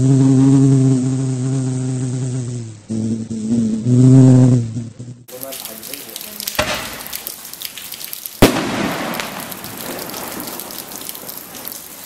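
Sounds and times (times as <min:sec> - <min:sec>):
firework bang: 0:06.6 - 0:07.1, 0:08.4 - 0:10.5
firework crackle: 0:08.4 - 0:12.0.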